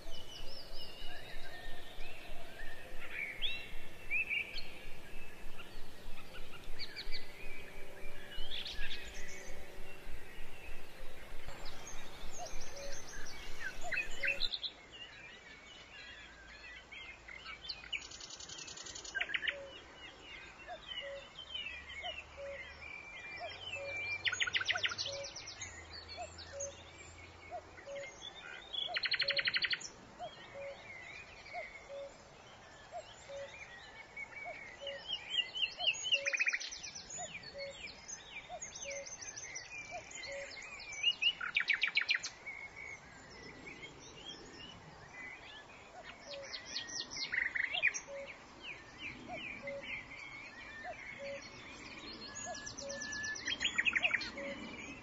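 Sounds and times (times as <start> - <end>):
rapid bird trills: 0.0 - 14.5
birds chirping: 0.0 - 14.7, 27.8 - 55.0.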